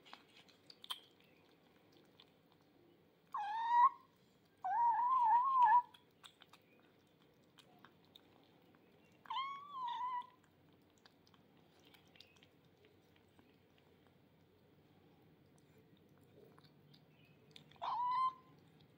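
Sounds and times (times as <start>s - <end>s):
kittens chewing and lapping: 0.0s - 18.9s
kittens meowing: 3.4s - 4.0s, 4.6s - 5.9s, 9.3s - 10.4s, 17.8s - 18.6s.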